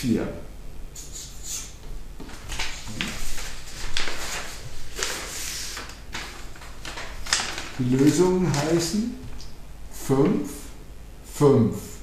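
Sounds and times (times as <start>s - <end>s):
paper rustling: 2.2s - 9.5s.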